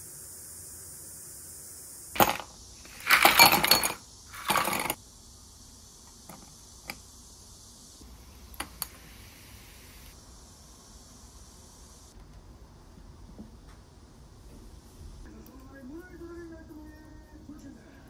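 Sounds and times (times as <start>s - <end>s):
ice cubes clinking in glass: 2.2s - 5.0s.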